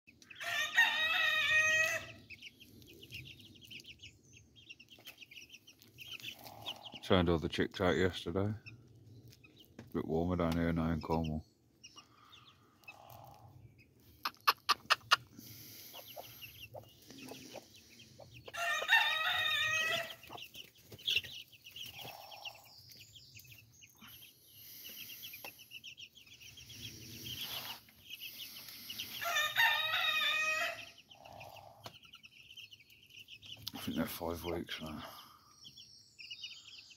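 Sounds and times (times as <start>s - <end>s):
chicks peeping: 0.1s - 36.9s
rooster crowing: 0.4s - 2.2s, 18.5s - 20.2s, 29.2s - 31.0s
hens clucking: 4.8s - 8.7s, 12.0s - 22.7s.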